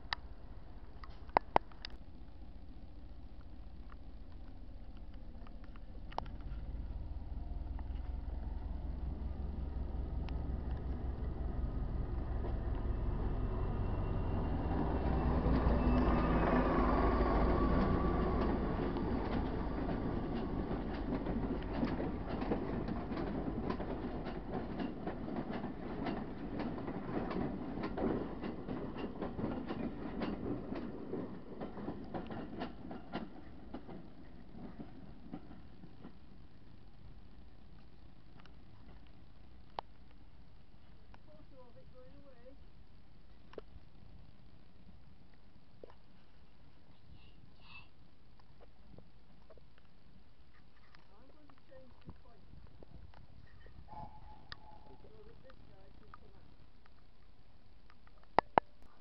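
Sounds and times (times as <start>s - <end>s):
diesel locomotive engine rumble: 0.0s - 59.0s
train wheels clicking over rail joints: 5.4s - 36.8s, 53.1s - 56.3s.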